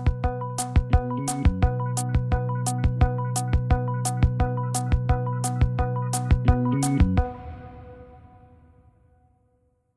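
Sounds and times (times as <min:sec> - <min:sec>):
music with drum beat: 0:00.0 - 0:07.3.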